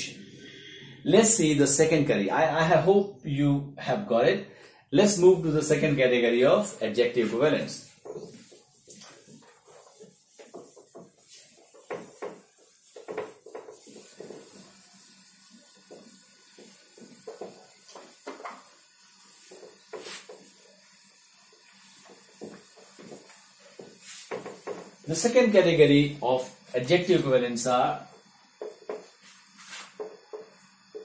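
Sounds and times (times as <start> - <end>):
eraser wiping a whiteboard: 7.0 - 31.0.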